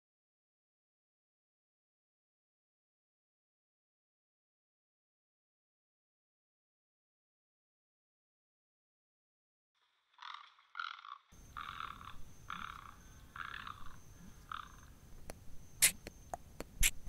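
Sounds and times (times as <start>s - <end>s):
croaking animal calls: 10.1s - 15.0s.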